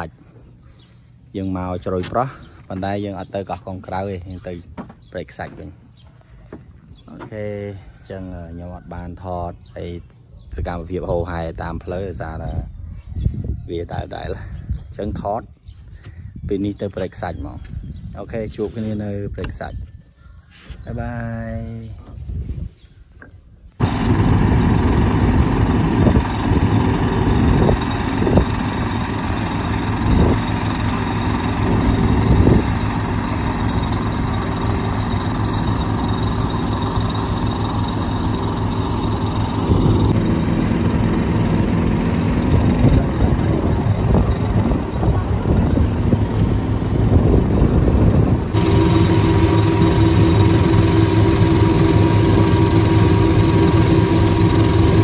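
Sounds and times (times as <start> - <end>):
boat engine droning: 23.8 - 55.0.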